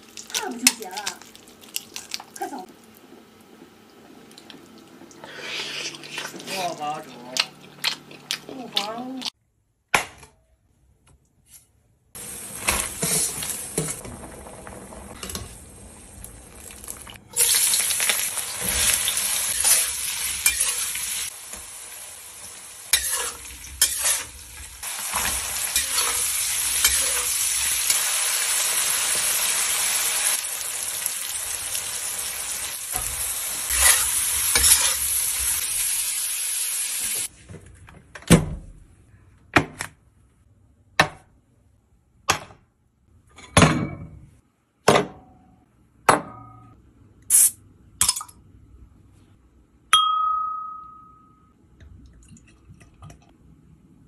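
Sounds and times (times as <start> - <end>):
meat and onion sizzling in a wok: 12.2 - 37.3.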